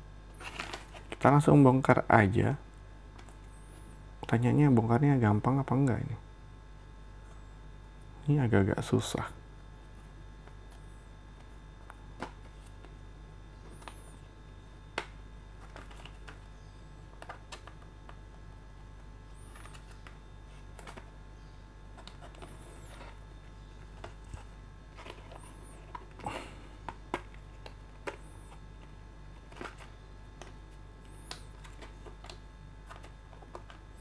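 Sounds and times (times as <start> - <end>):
low mains hum: 0.0 - 34.0
plastic packaging clicks and scrapes: 15.0 - 16.5, 23.8 - 34.0.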